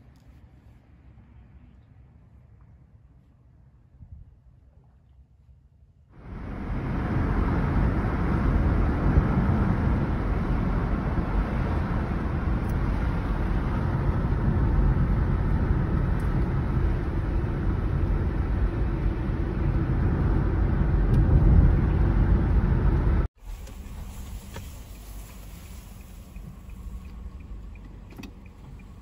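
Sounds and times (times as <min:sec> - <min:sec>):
car road and wind noise: 0:06.1 - 0:29.0.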